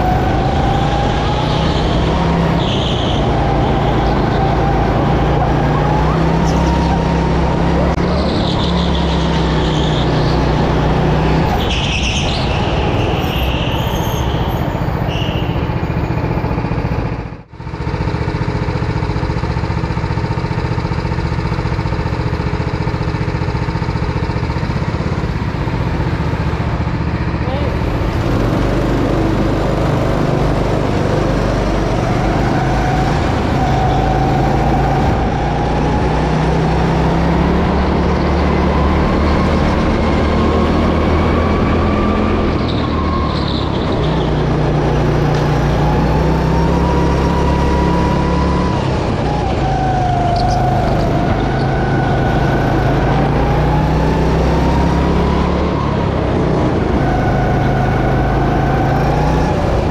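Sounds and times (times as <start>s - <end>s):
go-kart engine revving: 0.0s - 59.9s.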